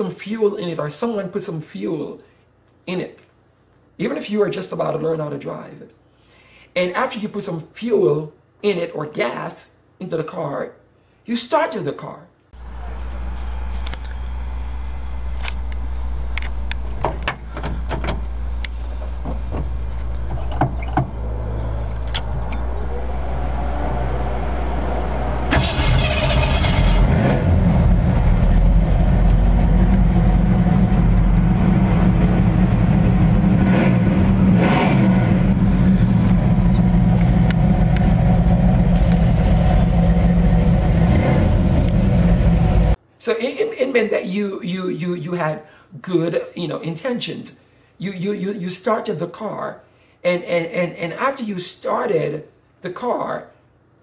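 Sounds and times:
car engine idling: 0:12.6 - 0:43.0.

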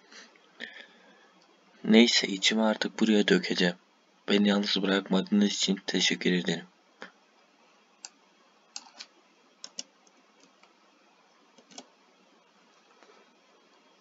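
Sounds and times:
low room hiss: 0:00.0 - 0:14.0
faint keyboard clicks: 0:08.8 - 0:10.8, 0:11.6 - 0:11.9.

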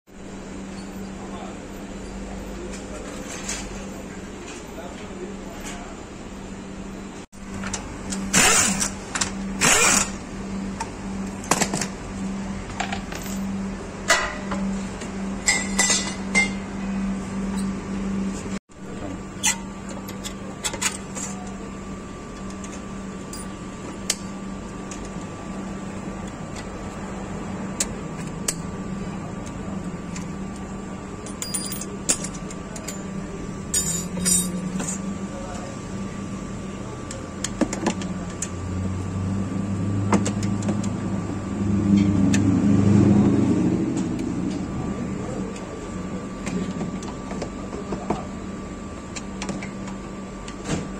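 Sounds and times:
steady low hum: 0:00.1 - 0:50.9.

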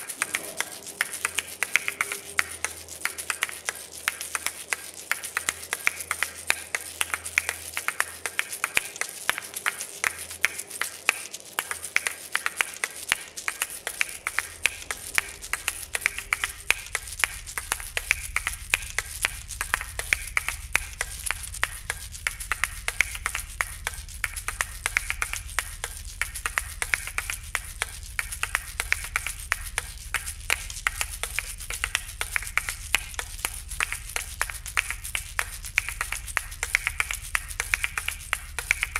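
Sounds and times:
faint low hum: 0:00.0 - 0:38.9.

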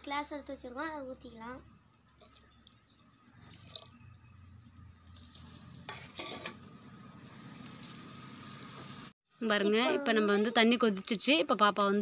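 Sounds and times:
milk pouring: 0:03.4 - 0:04.0.

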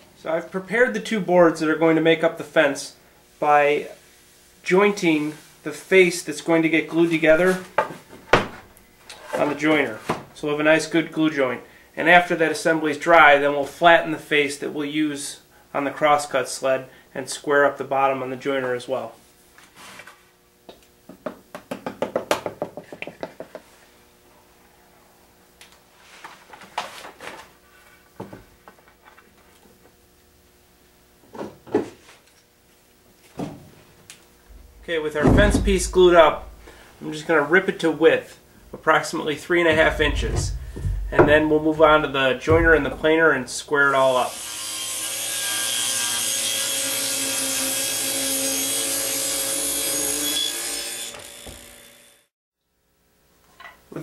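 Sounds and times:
metal clamps clunking and scraping: 0:34.5 - 0:36.8, 0:39.7 - 0:43.2
table saw cutting wood: 0:44.2 - 0:52.3.

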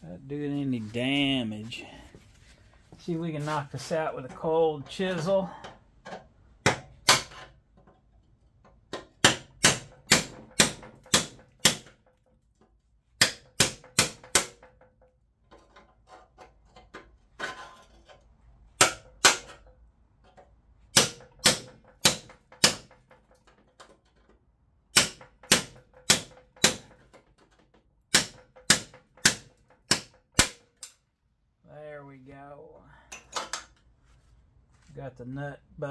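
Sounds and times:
hammer striking chisel on metal: 0:06.6 - 0:07.5, 0:09.0 - 0:12.0, 0:13.2 - 0:14.6, 0:18.8 - 0:19.6, 0:20.9 - 0:22.9, 0:24.9 - 0:26.9, 0:28.1 - 0:30.9.

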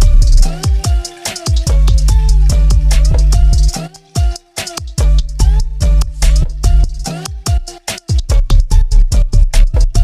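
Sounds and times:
deep held bass: 0:00.0 - 0:00.6, 0:01.7 - 0:03.8, 0:05.0 - 0:07.1, 0:08.3 - 0:10.0
electronic beat with drum hits: 0:00.0 - 0:10.0.

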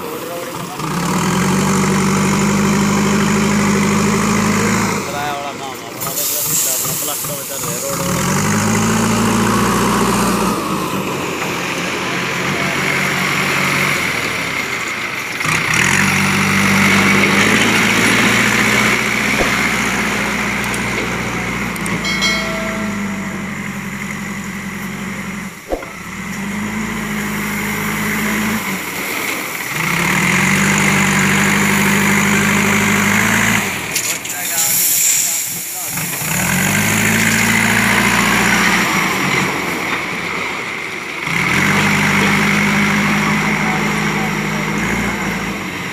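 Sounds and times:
diesel engine under load: 0:00.0 - 0:45.9
sharp knock: 0:19.3 - 0:21.1, 0:22.0 - 0:23.7, 0:25.7 - 0:26.2
brief high tone: 0:22.0 - 0:24.2.

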